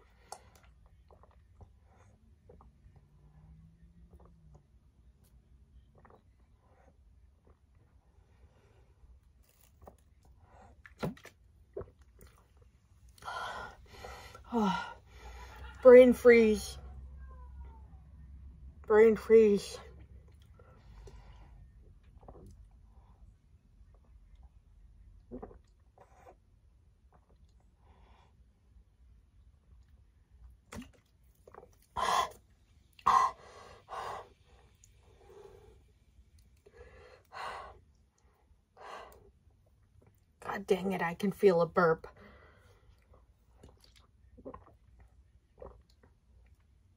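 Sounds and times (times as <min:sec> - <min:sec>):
person gulping drink: 0:00.0 - 0:03.2, 0:05.7 - 0:08.0, 0:09.2 - 0:13.3, 0:22.0 - 0:22.9, 0:23.8 - 0:27.7, 0:29.8 - 0:33.3, 0:42.9 - 0:46.8
woman breathing: 0:13.2 - 0:15.8, 0:42.1 - 0:43.0.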